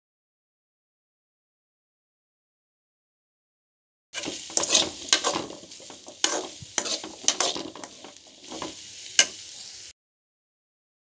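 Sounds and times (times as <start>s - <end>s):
spoon scraping metal pan: 4.2s - 9.7s
frying sizzle: 4.2s - 10.0s.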